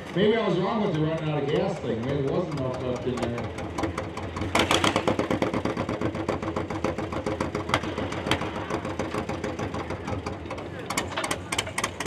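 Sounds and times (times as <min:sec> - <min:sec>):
tractor engine pulsing: 0:00.0 - 0:12.0.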